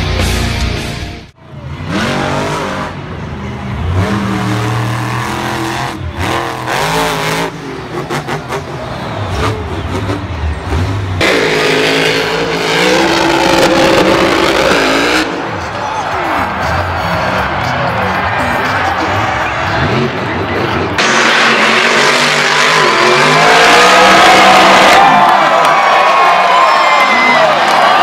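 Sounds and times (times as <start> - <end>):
truck engine revving hard: 1.6 - 26.0.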